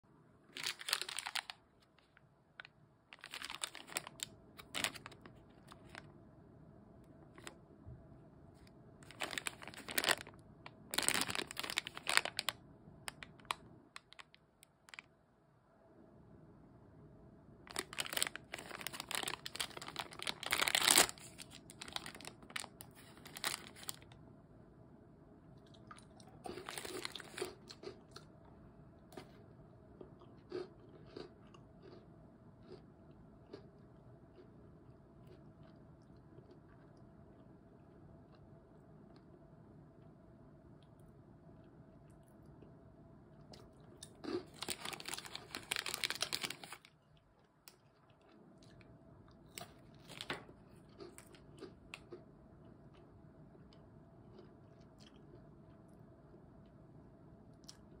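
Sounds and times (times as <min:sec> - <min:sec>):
plastic packet crinkling: 0:00.5 - 0:02.2, 0:03.1 - 0:06.0, 0:09.0 - 0:15.0, 0:17.7 - 0:24.1, 0:26.5 - 0:27.9, 0:44.2 - 0:46.9, 0:49.6 - 0:50.5.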